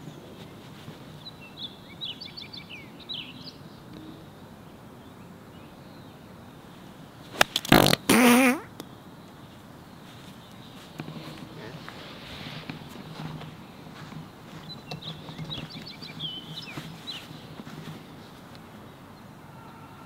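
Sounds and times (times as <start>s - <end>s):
birds chirping: 0.0s - 20.0s
golf club striking sand: 7.3s - 8.1s.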